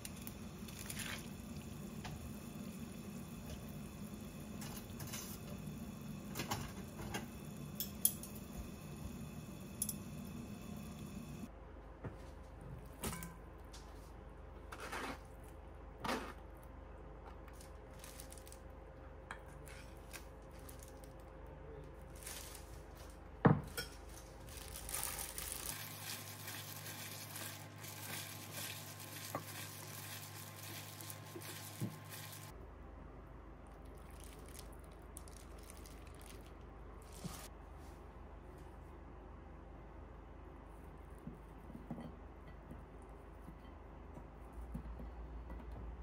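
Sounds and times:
utensils clinking on metal bowl: 7.8s - 8.4s, 9.8s - 10.1s.

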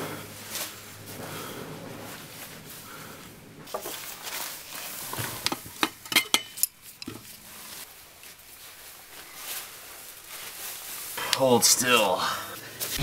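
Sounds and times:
metal tools clinking in metal bowl: 5.5s - 7.3s.

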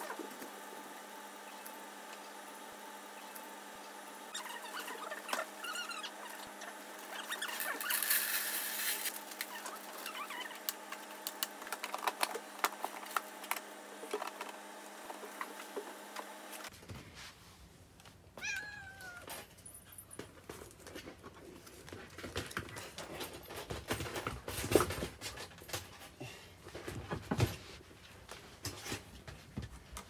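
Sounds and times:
short high squeaks: 4.3s - 10.6s
litter pellets poured into plastic tray: 7.5s - 9.2s.

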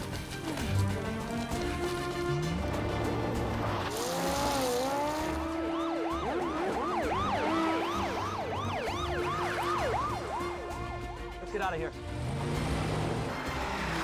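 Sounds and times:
police siren wailing and yelping: 4.8s - 11.2s.

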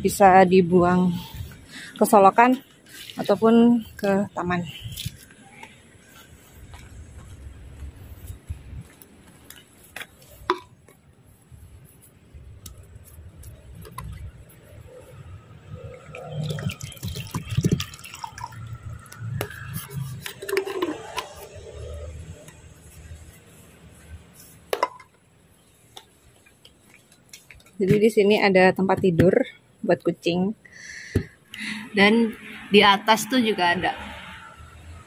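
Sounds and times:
water pouring into plastic tub: 16.0s - 21.4s.

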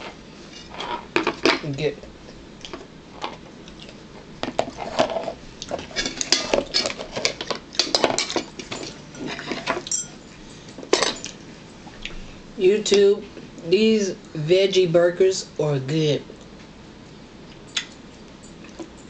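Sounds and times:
dishes clattering on a table: 5.8s - 10.2s
cutlery clinking on a plate: 6.0s - 10.2s.

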